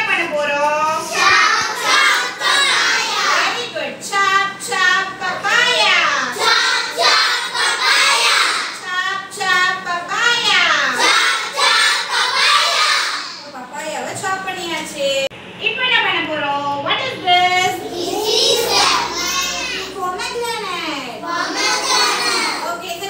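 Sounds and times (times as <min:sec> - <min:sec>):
children singing: 0:01.1 - 0:03.4, 0:11.0 - 0:13.3.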